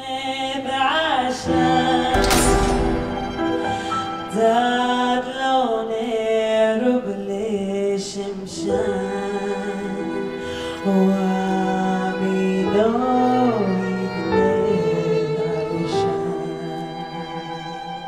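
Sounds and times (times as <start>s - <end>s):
sharp crash hit: 2.1s - 4.0s.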